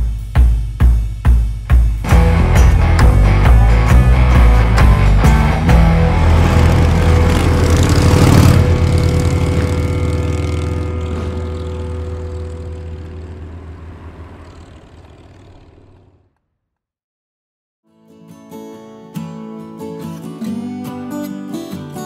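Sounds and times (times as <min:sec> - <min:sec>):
motorcycle engine passing by: 0:02.8 - 0:16.4.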